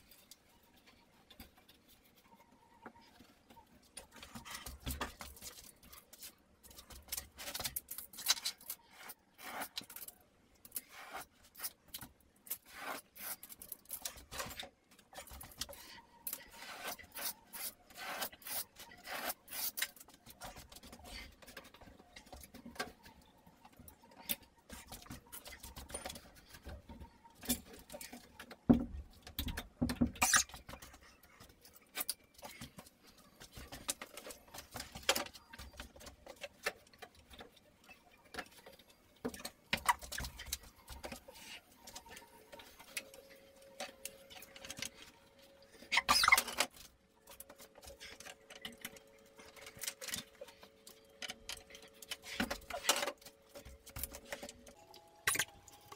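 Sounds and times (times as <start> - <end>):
hand tool scraping plasterboard: 15.3 - 21.4.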